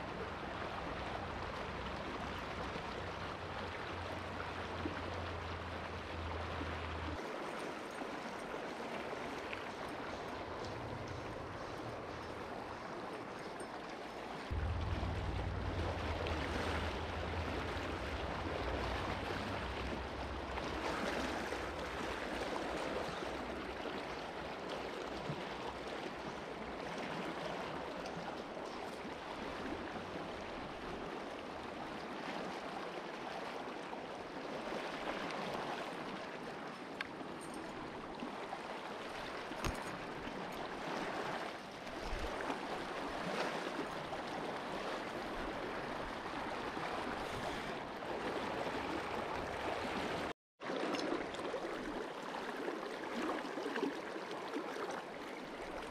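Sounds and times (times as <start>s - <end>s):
river rushing: 0.0s - 52.0s.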